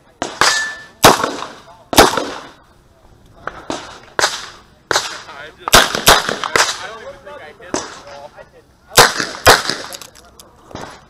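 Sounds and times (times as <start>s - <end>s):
revolver gunshots: 0.2s - 2.6s, 3.6s - 6.9s, 8.9s - 10.1s.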